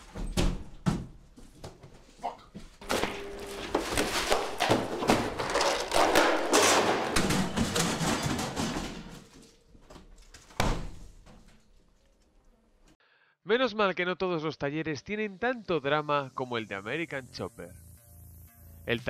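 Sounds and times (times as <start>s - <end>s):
banging and clattering: 2.8s - 9.4s.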